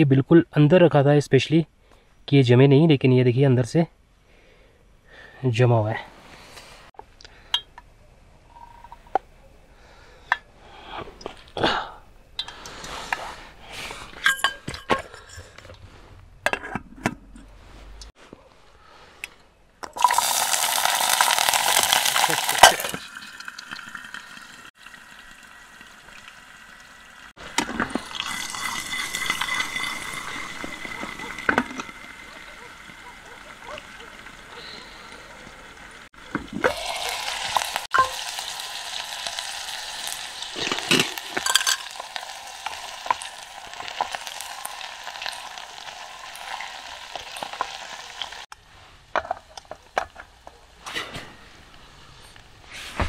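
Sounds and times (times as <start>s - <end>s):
pot and bottle clinks: 14.2s - 15.6s, 37.6s - 38.3s, 40.6s - 42.2s
onion sizzling in hot oil: 20.0s - 33.1s, 34.0s - 48.5s.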